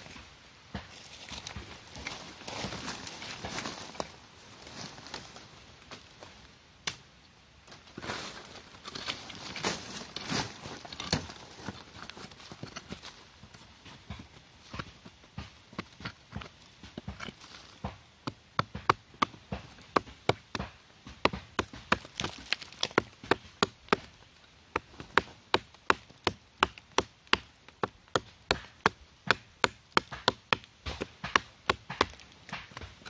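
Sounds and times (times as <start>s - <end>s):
machete chopping into wood: 24.8s - 33.0s.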